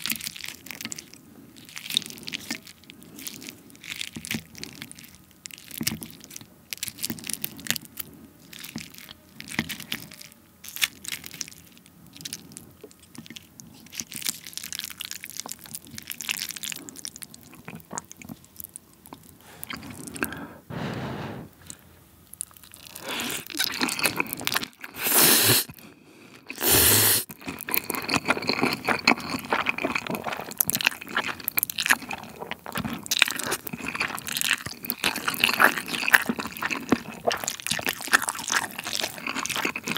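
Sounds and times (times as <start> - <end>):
wet chewing and crunching: 0.0 - 20.5, 21.6 - 39.9
loud slurps: 19.4 - 21.8, 22.9 - 25.8, 26.5 - 27.3.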